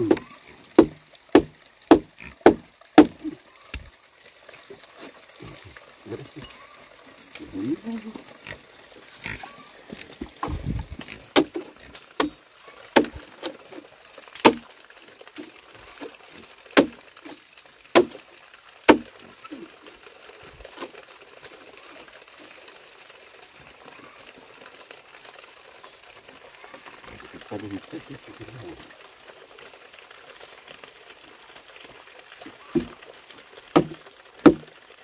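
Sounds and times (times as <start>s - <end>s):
hand tool striking wood: 0.8s - 3.2s, 11.4s - 11.6s, 14.4s - 14.6s, 18.0s - 18.2s, 33.8s - 34.7s.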